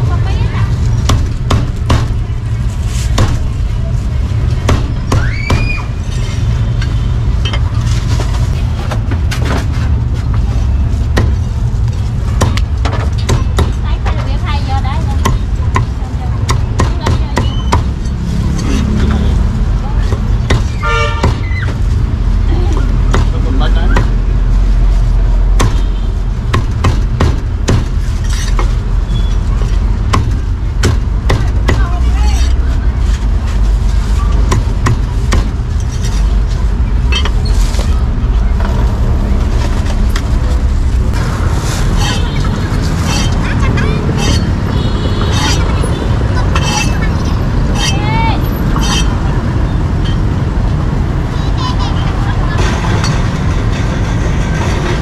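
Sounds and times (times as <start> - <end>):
low rumble of street traffic: 0.0 - 55.0
cleaver chopping meat: 25.6 - 25.9.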